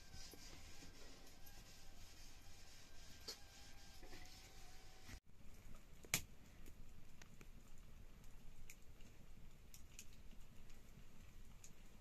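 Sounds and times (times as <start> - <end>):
wood fire crackling: 0.0 - 12.0.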